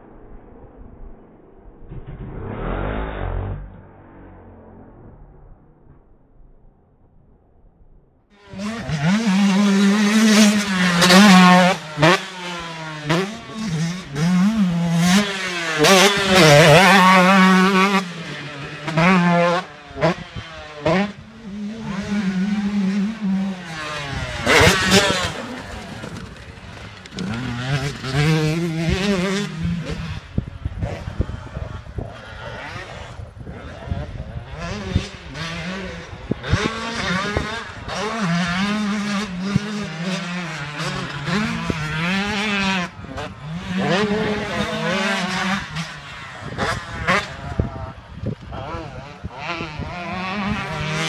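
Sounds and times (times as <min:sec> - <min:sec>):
loud rush of noise: 0:00.0 - 0:06.0
motocross bike engine revving: 0:01.9 - 0:05.9, 0:08.4 - 0:51.0.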